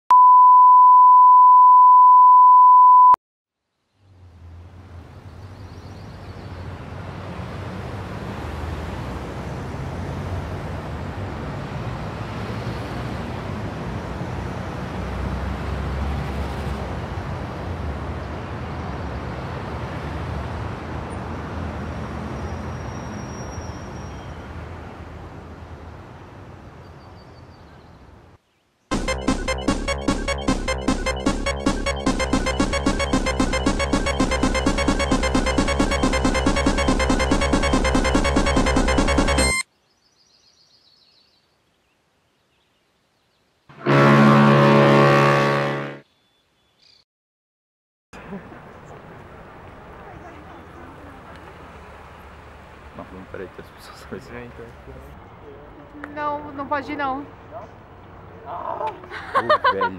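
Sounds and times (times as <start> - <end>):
loud electronic beep: 0.1 - 3.2, 28.9 - 39.6
cars driving along street: 4.1 - 27.0, 48.2 - 59.9.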